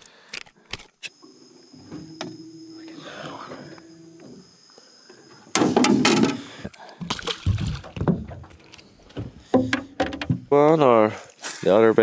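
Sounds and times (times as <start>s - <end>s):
knocks and clunks: 5.5s - 10.6s
water splashing: 5.8s - 8.8s.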